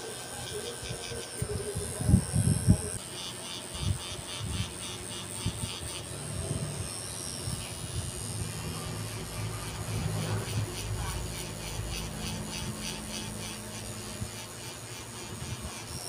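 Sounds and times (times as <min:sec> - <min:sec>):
tattoo machine buzzing: 0:00.0 - 0:16.0.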